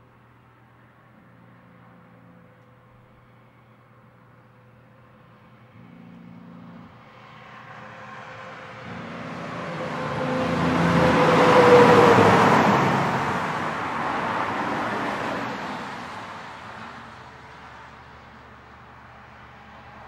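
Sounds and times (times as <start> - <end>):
truck passing at highway speed: 3.2 - 20.0.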